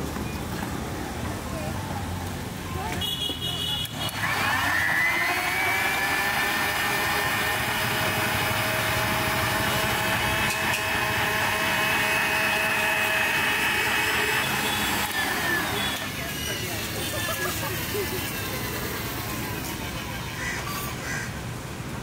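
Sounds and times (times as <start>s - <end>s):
electric blender motor whining: 3.8s - 21.1s.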